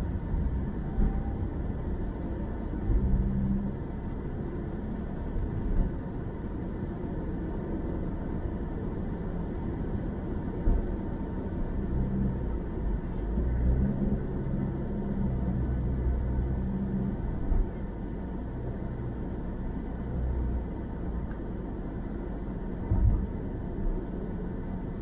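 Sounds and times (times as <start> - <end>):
car driving on road: 0.0 - 25.0.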